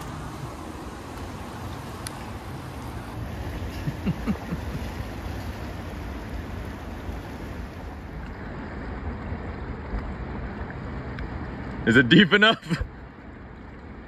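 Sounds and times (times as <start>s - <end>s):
river rushing: 0.0s - 14.0s.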